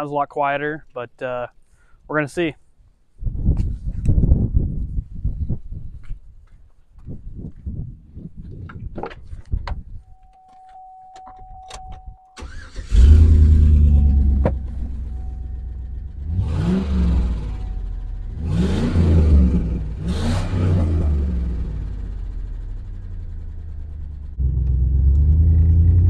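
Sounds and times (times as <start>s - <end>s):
truck engine cranking and revving: 12.4s - 26.0s.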